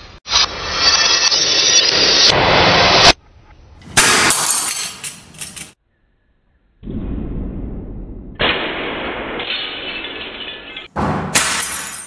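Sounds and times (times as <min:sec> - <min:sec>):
light bulbs shattering: 0:08.4 - 0:12.0.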